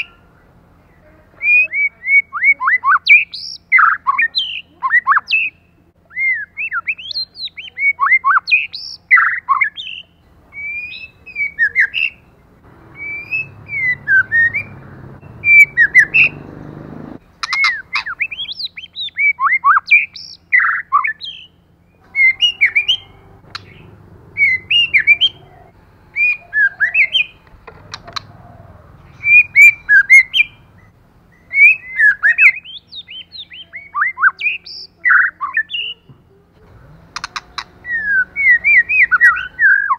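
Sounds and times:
bird singing varied whistles: 1.4 - 12.3, 12.9 - 16.4, 17.4 - 23.8, 26.2 - 27.4, 29.1 - 36.0, 37.2 - 39.9.

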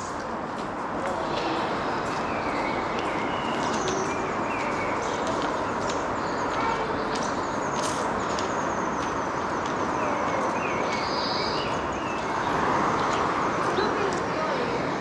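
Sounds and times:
distant traffic rushing: 0.0 - 15.0
bird chirps: 7.2 - 14.2.

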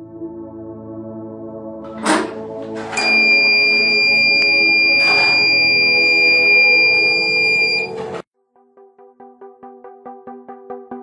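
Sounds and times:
high-pitched buzzer tone: 2.9 - 8.0.

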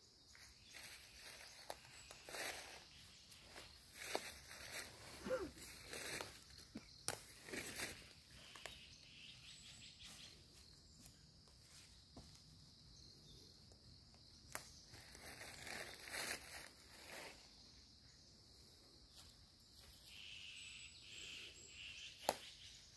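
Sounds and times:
high insect drone: 0.0 - 22.9
footsteps crunching dry leaves: 0.6 - 6.5, 7.2 - 8.8, 14.9 - 17.4.

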